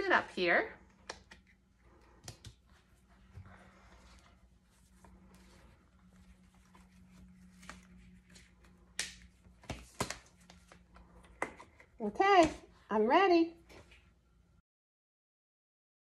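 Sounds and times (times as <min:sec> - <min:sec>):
faint steady hum: 0:00.0 - 0:14.6
rustling of protective gear: 0:02.6 - 0:12.0.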